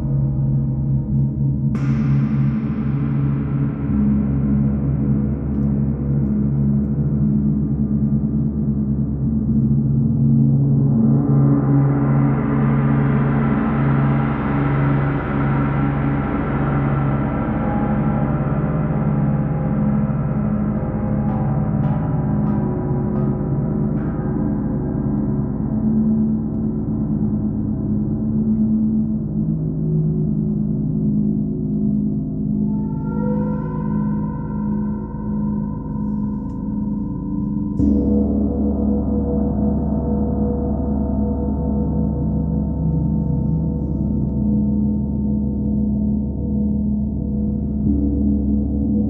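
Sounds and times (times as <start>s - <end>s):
large gongs ringing: 10.6s - 29.5s.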